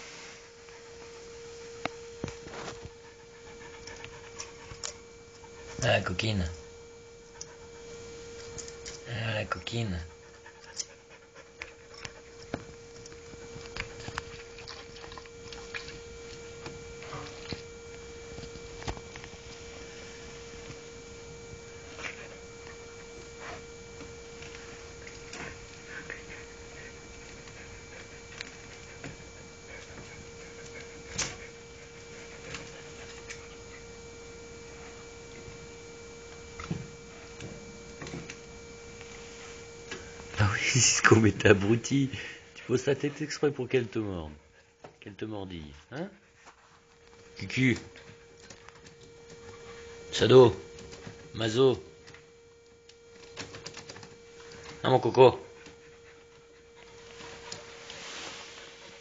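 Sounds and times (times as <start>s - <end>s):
steady hum: 0.0s - 59.0s.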